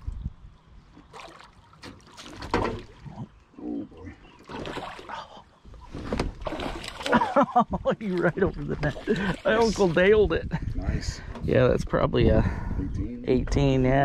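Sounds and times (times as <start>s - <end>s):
fish splashing in water: 1.0s - 3.1s, 4.4s - 5.3s, 6.1s - 7.4s.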